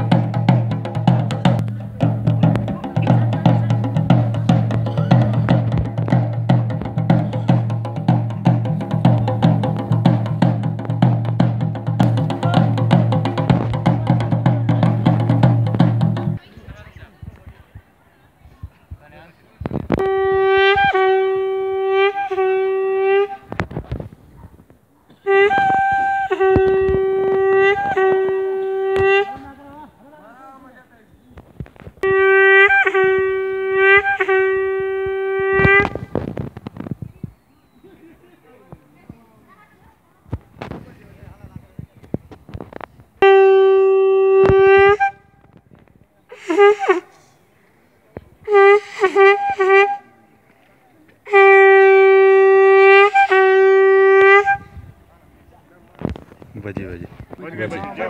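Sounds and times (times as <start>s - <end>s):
drum strikes: 0.0s - 16.4s
horn blasts: 20.0s - 23.5s, 25.2s - 29.5s, 32.0s - 36.1s, 43.2s - 45.3s, 48.4s - 50.2s, 51.3s - 54.8s.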